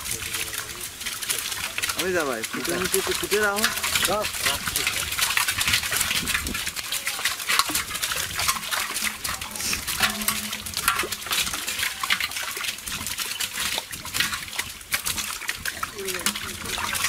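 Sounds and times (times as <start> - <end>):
shrimp and fish splashing: 0.0 - 17.0
hands rummaging through catch: 6.9 - 12.4.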